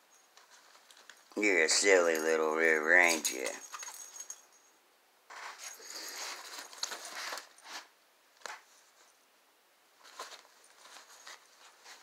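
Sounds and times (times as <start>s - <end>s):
fabric tunnel rustling: 10.0s - 12.0s.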